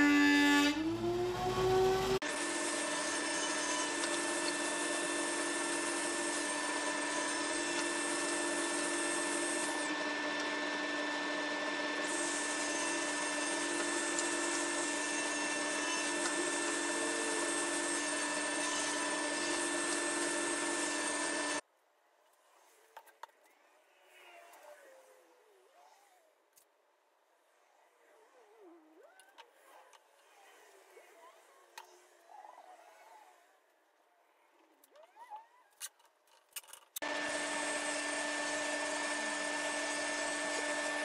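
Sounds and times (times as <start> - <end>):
table saw ripping wood: 37.0 - 41.0.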